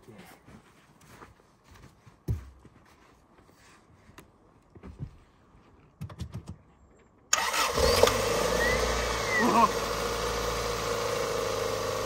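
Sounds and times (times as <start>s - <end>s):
car engine starting and idling: 7.3s - 12.0s.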